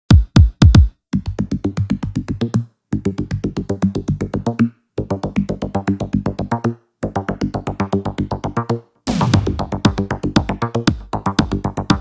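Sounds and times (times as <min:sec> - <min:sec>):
fast drum machine beat: 0:00.1 - 0:01.0, 0:09.1 - 0:12.0
bass line: 0:00.1 - 0:12.0.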